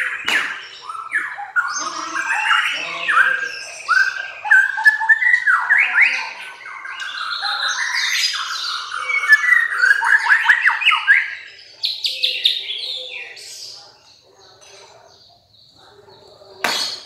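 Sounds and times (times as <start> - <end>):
songbird singing: 0.0 - 17.0.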